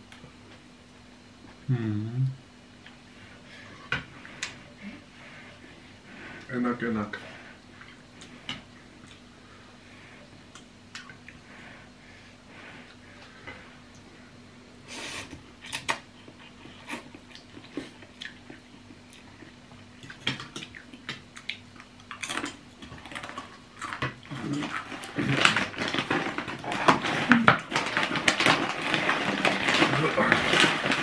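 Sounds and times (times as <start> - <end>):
people chewing: 7.1 - 11.9, 15.0 - 31.0
plastic snack bag crinkling: 22.1 - 31.0.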